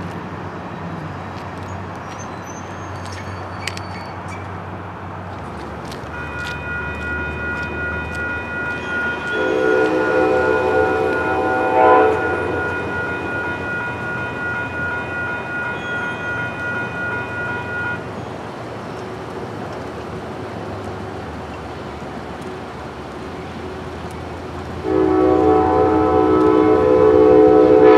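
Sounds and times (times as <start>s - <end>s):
locomotive horn blast: 6.1s - 18.0s, 24.8s - 27.9s
crossing bell ringing: 6.1s - 18.4s.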